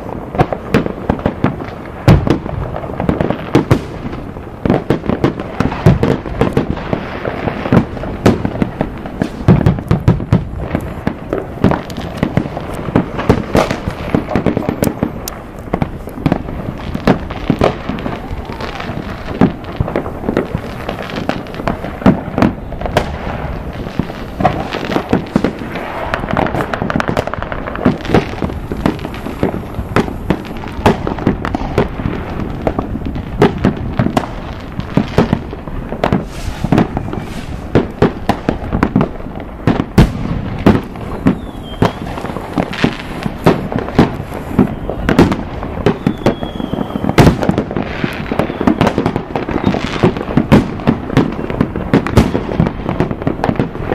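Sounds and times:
fireworks and firecrackers crackling: 0:00.0 - 0:53.9
firework whistles: 0:10.8 - 0:52.4.

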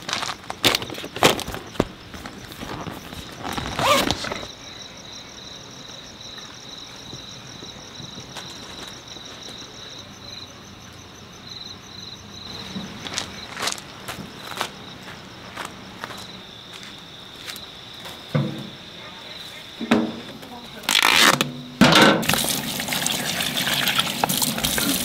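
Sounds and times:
items rustling into cooler bag: 0:00.0 - 0:04.5
crickets chirping: 0:00.0 - 0:25.0.

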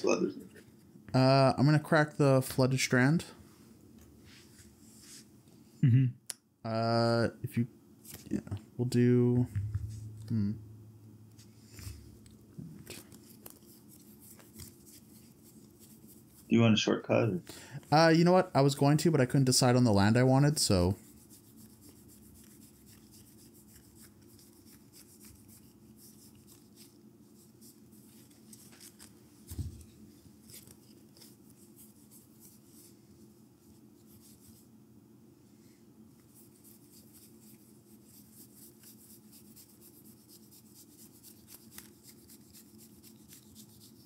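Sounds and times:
soft thump: 0:09.4 - 0:10.8
cards being shuffled: 0:11.7 - 0:16.5, 0:27.6 - 0:32.5, 0:40.8 - 0:44.0.

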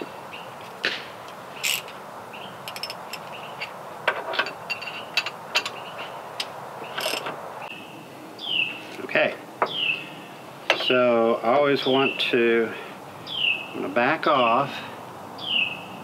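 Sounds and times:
birds chirping: 0:00.0 - 0:03.9, 0:04.5 - 0:16.0
wrench clicking on bolts: 0:01.6 - 0:01.9, 0:02.7 - 0:03.7.

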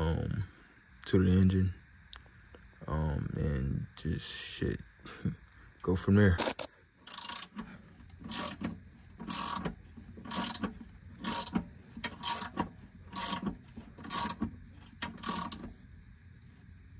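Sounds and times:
hand ratchet rasping: 0:07.0 - 0:15.8.

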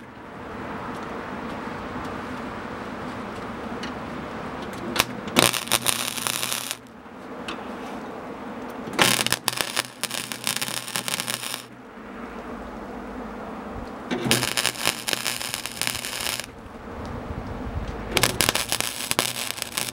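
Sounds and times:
welder arc crackling on steel: 0:04.8 - 0:06.9, 0:09.0 - 0:11.8, 0:14.2 - 0:16.6, 0:18.1 - 0:19.9.

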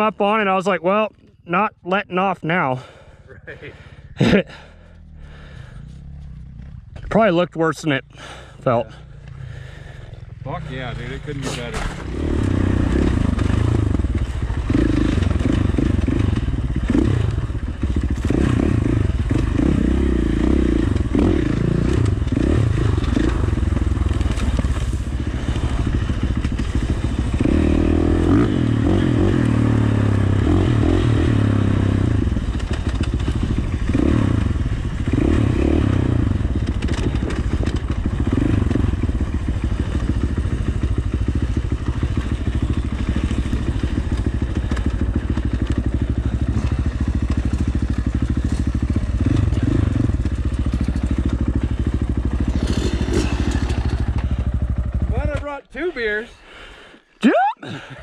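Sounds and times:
dirt bike engine revving: 0:08.1 - 0:56.2
bike clattering over rough ground: 0:11.4 - 0:16.1, 0:22.0 - 0:27.5, 0:32.3 - 0:35.3, 0:36.4 - 0:55.5.

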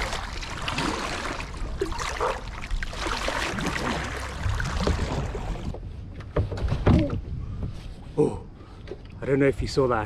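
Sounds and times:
paddle splashing in water: 0:00.0 - 0:05.8.

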